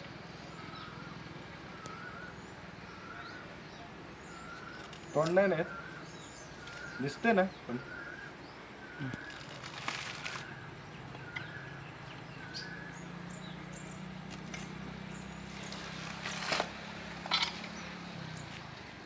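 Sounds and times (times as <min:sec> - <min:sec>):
bird chirping: 0:00.0 - 0:18.6
coconut husk crunching and tearing: 0:04.5 - 0:05.5, 0:06.6 - 0:07.0, 0:09.0 - 0:10.6, 0:14.3 - 0:14.7, 0:15.5 - 0:17.7.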